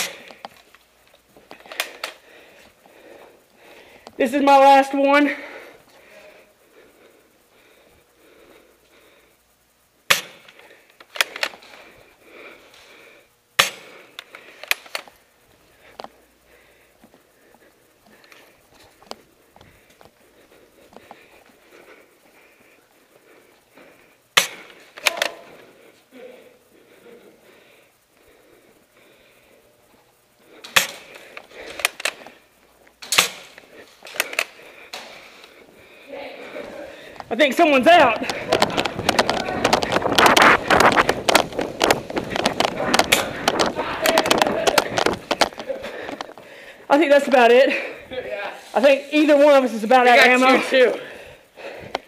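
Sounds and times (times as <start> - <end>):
airsoft rifle shots: 0.0 - 0.3, 10.1 - 11.5, 13.6 - 14.0, 24.4 - 25.5, 30.6 - 32.2, 33.0 - 34.5, 37.9 - 45.2.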